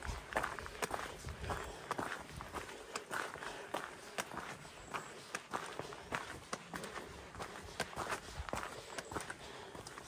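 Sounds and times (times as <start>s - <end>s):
footsteps on rocky dirt trail: 0.0s - 10.0s.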